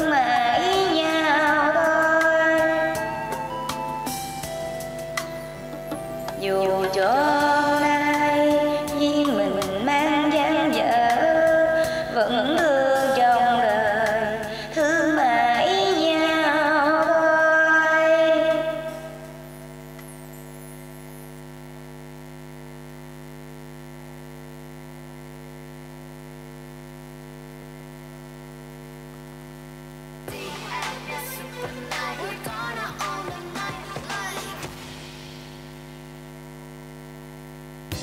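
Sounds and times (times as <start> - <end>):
sung held note with vibrato: 0.0 - 13.7, 14.3 - 22.1
karaoke music: 0.0 - 21.4, 30.3 - 36.2
steady electrical hum: 0.0 - 38.0.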